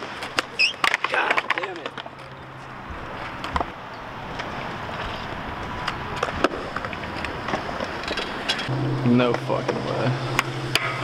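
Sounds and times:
sharp skateboard clacks: 0.0s - 2.3s
skateboard wheels rolling on concrete: 0.0s - 11.0s.

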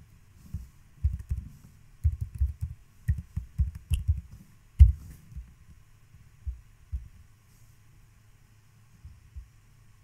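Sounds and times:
keyboard keystrokes: 1.0s - 5.0s.

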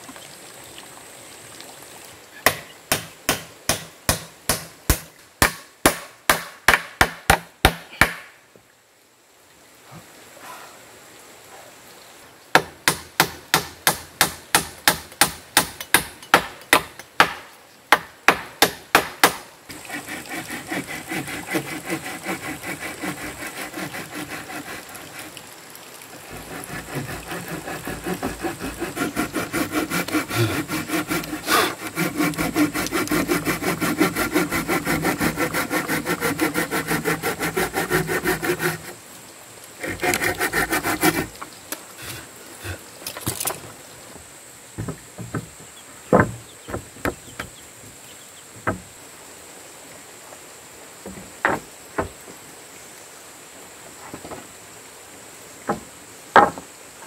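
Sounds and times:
hand saw cutting wood: 18.6s - 25.4s, 26.1s - 39.0s, 39.8s - 41.4s, 42.0s - 43.4s
hammer blows on wood: 26.7s - 34.0s.

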